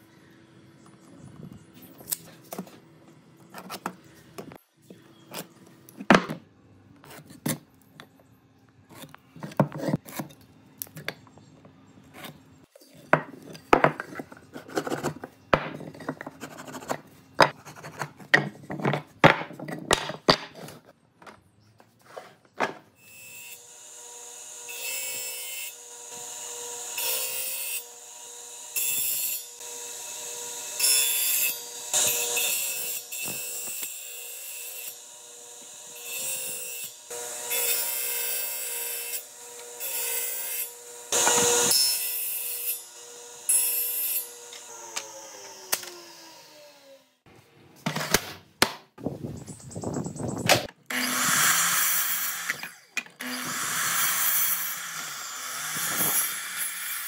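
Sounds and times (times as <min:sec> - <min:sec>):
disc sander running: 0:40.7 - 0:41.8.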